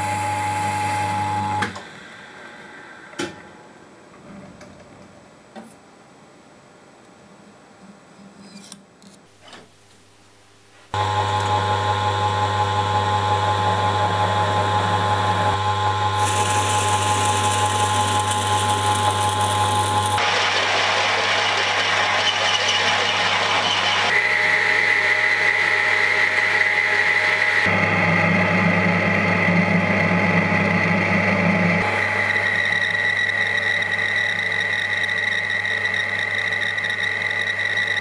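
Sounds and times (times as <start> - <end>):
lathe motor hum: 11.0 - 38.0
metal cutting: 14.4 - 27.7.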